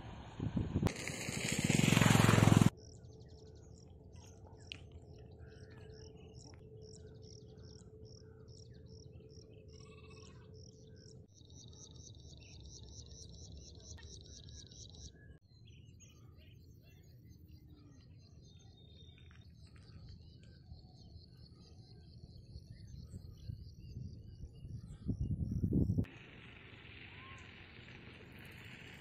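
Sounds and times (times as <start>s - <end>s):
bird calls: 2.8s - 25.7s.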